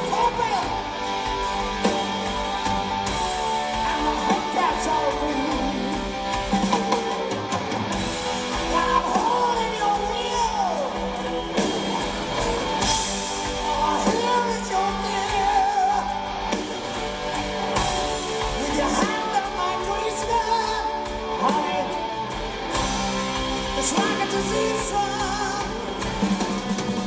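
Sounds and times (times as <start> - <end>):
man singing: 0.0 - 0.9, 3.6 - 7.3, 8.7 - 11.9, 13.5 - 16.4, 18.4 - 22.3, 23.6 - 26.3
drums: 0.0 - 27.0
electric guitar: 0.0 - 27.0.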